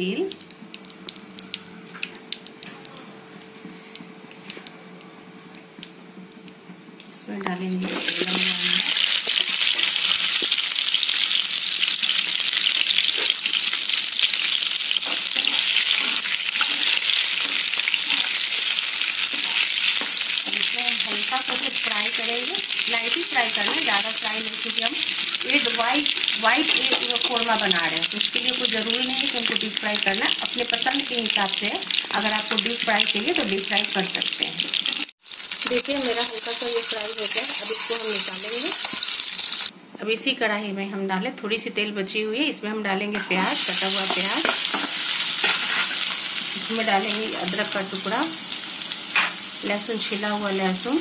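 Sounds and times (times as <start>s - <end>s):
eggs sizzling in hot oil: 7.8s - 39.7s, 43.3s - 51.0s.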